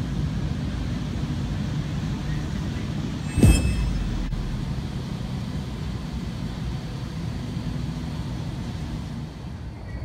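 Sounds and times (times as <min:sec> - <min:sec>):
air-cushion tram rumbling: 0:03.1 - 0:06.3.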